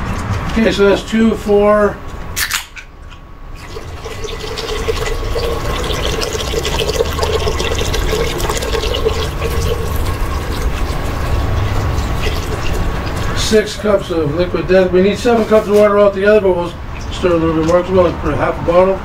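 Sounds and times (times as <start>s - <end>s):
can cracking open: 2.4s - 2.9s
water pouring into pot: 3.6s - 13.5s.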